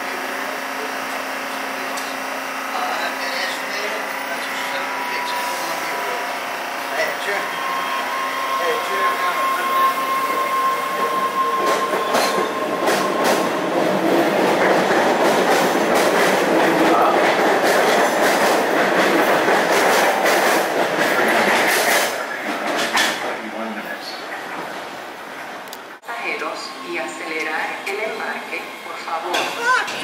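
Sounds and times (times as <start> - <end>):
train running noise: 0.0 - 30.0
train wheels clicking over rail joints: 11.6 - 23.4.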